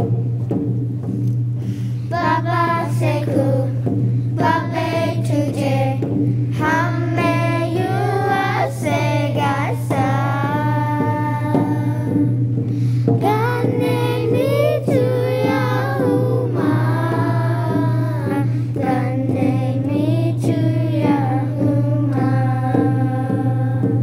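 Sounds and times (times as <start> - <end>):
instrumental accompaniment with drone: 0.0 - 24.0
children singing: 2.1 - 3.7, 6.6 - 12.2, 13.2 - 23.7.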